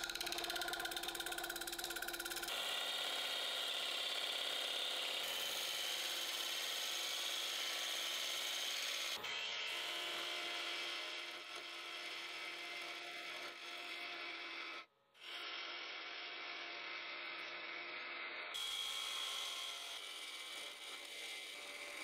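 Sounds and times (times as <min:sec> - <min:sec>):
lathe tool shearing spinning wood: 0:00.0 - 0:22.0.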